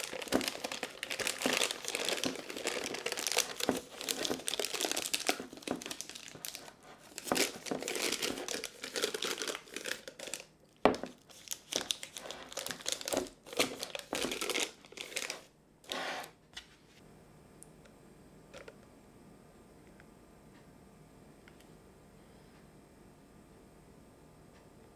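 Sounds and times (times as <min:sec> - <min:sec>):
plastic bag crinkling: 0:00.0 - 0:15.5.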